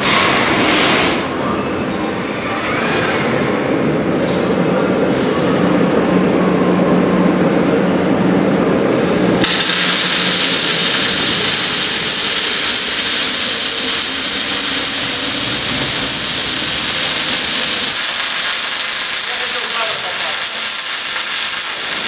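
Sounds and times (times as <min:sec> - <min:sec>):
low machine hum: 0:01.2 - 0:22.0
welding arc hissing crackle: 0:08.9 - 0:22.0.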